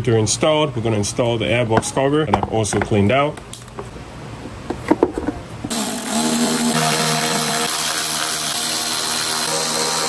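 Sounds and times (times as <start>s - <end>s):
power tool motor whining: 5.7s - 10.0s.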